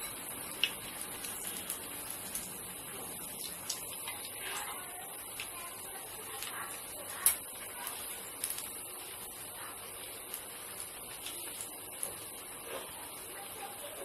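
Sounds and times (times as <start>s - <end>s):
bread deep-frying in hot oil: 0.0s - 14.0s
oil popping and crackling: 0.0s - 14.0s.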